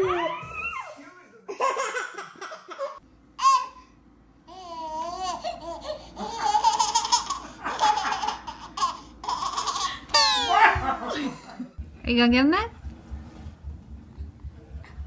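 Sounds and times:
baby laughing: 4.5 - 11.2.

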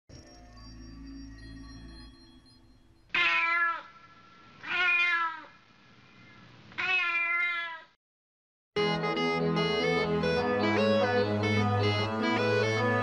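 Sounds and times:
cat meowing: 3.1 - 5.6, 6.8 - 8.0.

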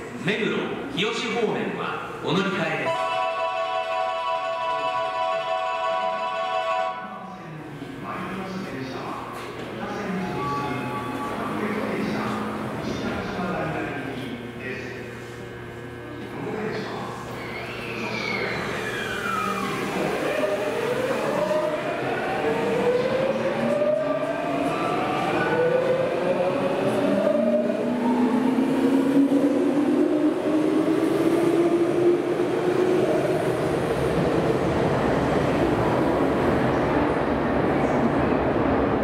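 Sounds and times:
traction motor whine rising: 17.4 - 22.0.

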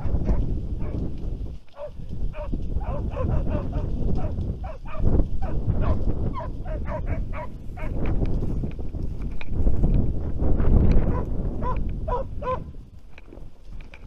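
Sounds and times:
wind rumble on microphone: 0.0 - 14.0
hounds baying in short yelps: 1.8 - 7.9, 11.1 - 12.6.

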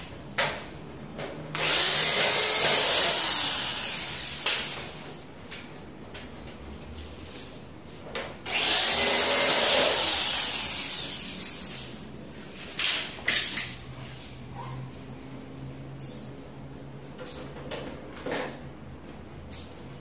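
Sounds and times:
electric drill motor whine: 1.6 - 4.8, 8.5 - 11.6.

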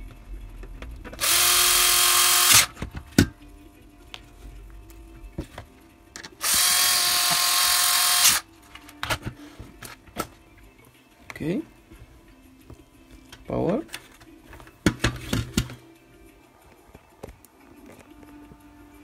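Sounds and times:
electric screwdriver whining: 1.2 - 2.8, 6.4 - 8.5.

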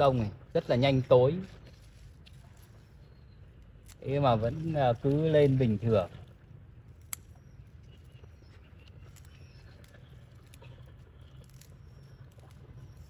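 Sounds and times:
leafy stems rustling: 0.0 - 13.0
scissors snipping a stem: 7.0 - 7.4.

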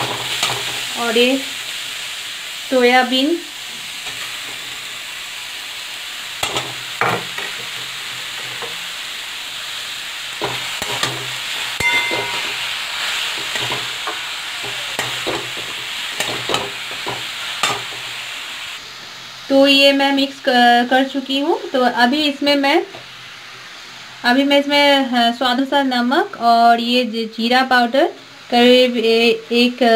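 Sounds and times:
vegetables sizzling in oil: 0.0 - 29.9
metal spatula scraping a pan: 6.4 - 8.8, 10.4 - 18.2.

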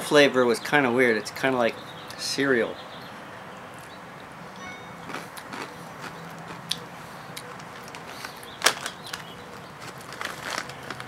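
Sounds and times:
crunchy corn snack chewing: 5.0 - 11.0.

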